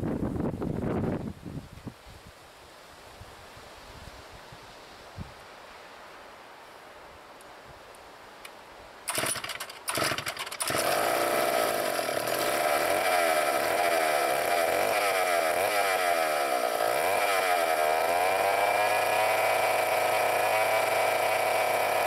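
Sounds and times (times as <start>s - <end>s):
chainsaw starting and running: 9.1s - 22.0s.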